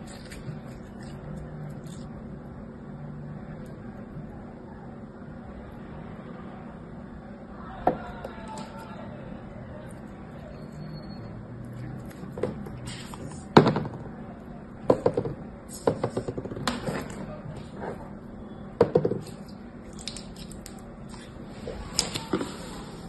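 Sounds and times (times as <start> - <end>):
slime squishing: 0.0 - 2.3, 19.2 - 23.0.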